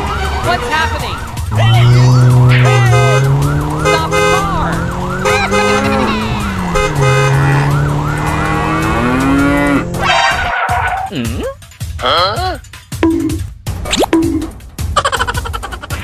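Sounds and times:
emergency siren yelping: 0.0s - 11.1s.

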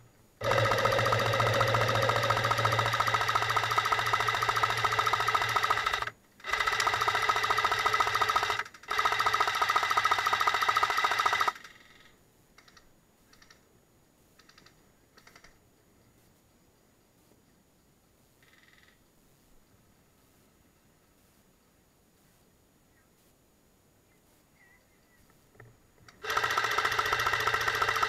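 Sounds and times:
airsoft machine gun rattling: 0.4s - 12.8s, 14.4s - 15.6s, 26.1s - 28.0s.

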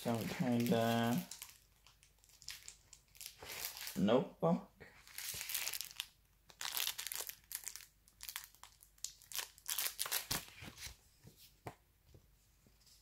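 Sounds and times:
plastic film crinkling: 0.0s - 4.0s, 5.0s - 10.9s.

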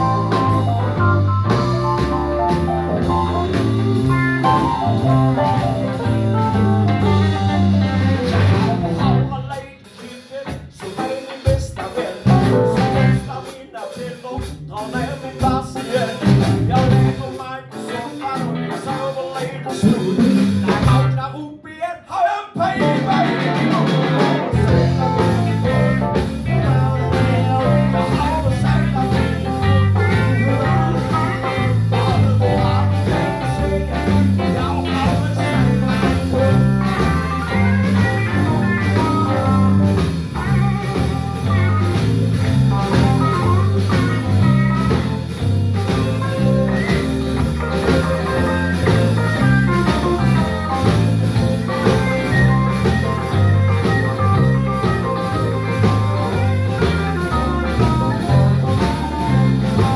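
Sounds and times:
electric bass line: 0.0s - 9.6s, 12.2s - 13.4s, 15.0s - 17.3s, 18.2s - 21.2s, 22.8s - 59.9s
electric guitars: 0.0s - 13.6s, 14.4s - 21.2s, 22.6s - 59.9s
drum kit: 0.0s - 21.4s, 22.0s - 59.9s.

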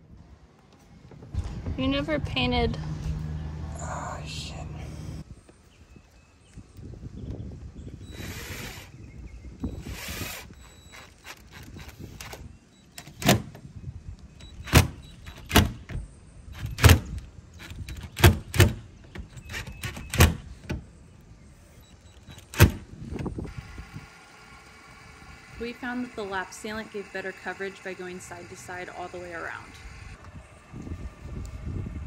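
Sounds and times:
cordless drill running: 8.0s - 9.0s, 9.6s - 12.6s.

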